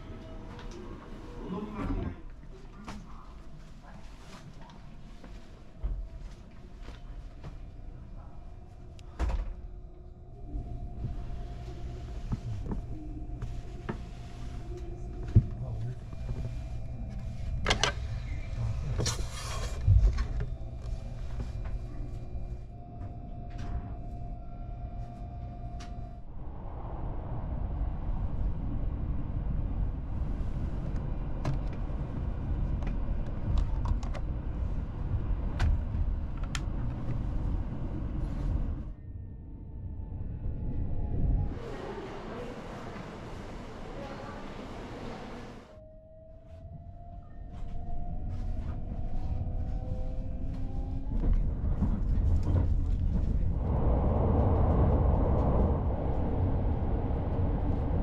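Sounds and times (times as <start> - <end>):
train car low hum: 0.0 - 58.0
faint steady tone: 19.6 - 27.2.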